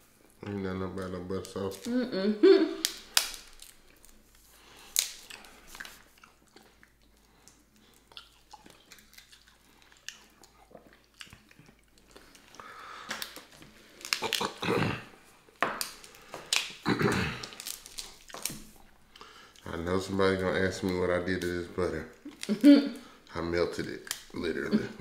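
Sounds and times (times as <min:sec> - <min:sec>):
crab shells cracking: 0:01.4 - 0:01.9, 0:02.8 - 0:14.7, 0:15.5 - 0:19.6, 0:23.8 - 0:24.5
close-up chewing: 0:02.8 - 0:19.7.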